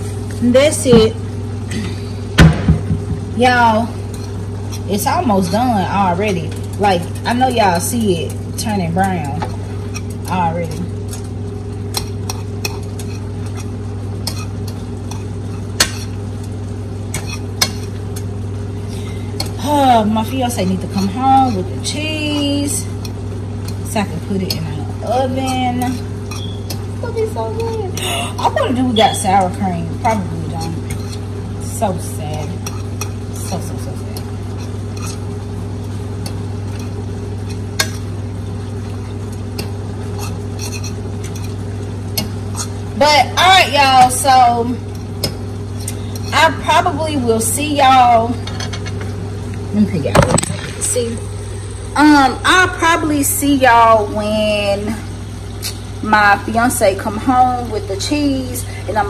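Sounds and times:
steady low hum: 0:00.0 - 0:59.0
spoon scraping frying pan: 0:03.4 - 0:18.4, 0:19.0 - 0:46.9
utensil scraping a pan: 0:18.9 - 0:35.3
utensil clicking against pan: 0:23.0 - 0:27.8.

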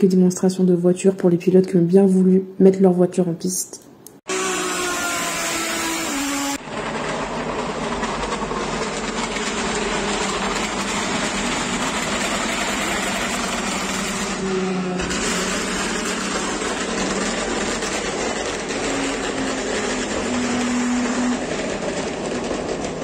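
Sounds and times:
race cars engine noise: 0:04.4 - 0:23.0.

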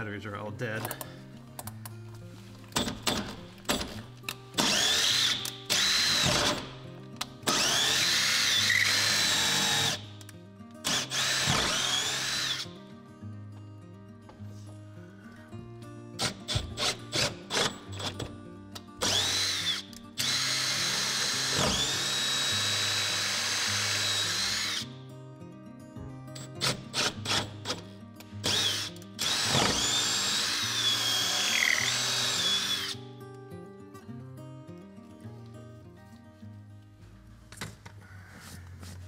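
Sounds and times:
cordless drill boring into wood: 0:04.6 - 0:06.7, 0:07.5 - 0:10.0, 0:10.8 - 0:12.6, 0:19.0 - 0:24.8, 0:26.6 - 0:27.8, 0:28.4 - 0:33.0.

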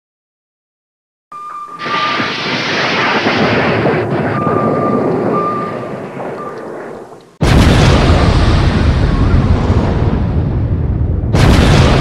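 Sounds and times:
sudden loud blast: 0:01.7 - 0:06.5, 0:07.4 - 0:12.0
rushing explosion rumble: 0:01.8 - 0:12.0.

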